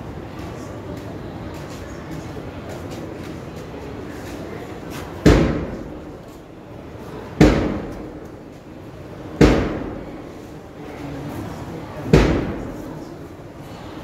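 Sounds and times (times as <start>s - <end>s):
heavy thumps: 7.4s - 8.2s.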